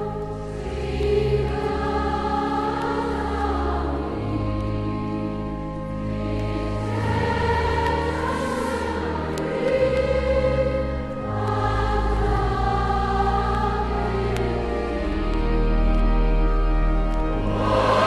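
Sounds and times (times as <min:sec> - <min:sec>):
choir singing held chords: 0:00.0 - 0:18.0
sustained low notes: 0:17.4 - 0:18.0.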